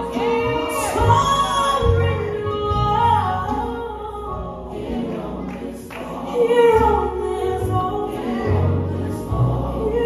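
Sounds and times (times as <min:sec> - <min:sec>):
woman singing slow melody: 0:00.0 - 0:04.5
gospel band playing: 0:00.0 - 0:10.0.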